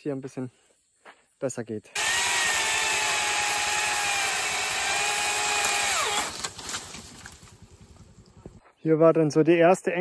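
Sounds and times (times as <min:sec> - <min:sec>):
electric chainsaw cutting branch: 0:02.0 - 0:07.8.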